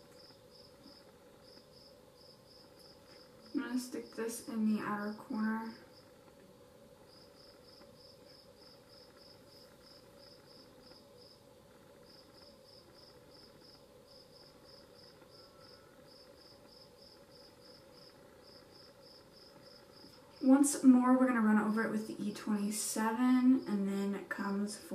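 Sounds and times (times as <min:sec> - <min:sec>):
cricket chirping: 0:00.0 - 0:06.2, 0:07.1 - 0:20.5
faint steady hum: 0:00.0 - 0:24.9.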